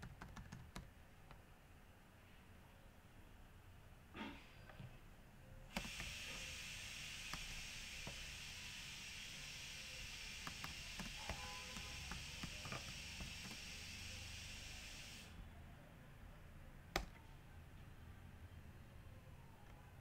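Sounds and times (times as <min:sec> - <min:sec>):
computer keyboard clicks: 0:00.0 - 0:01.4, 0:12.1 - 0:13.6, 0:16.9 - 0:17.2
steady hiss: 0:05.7 - 0:15.4.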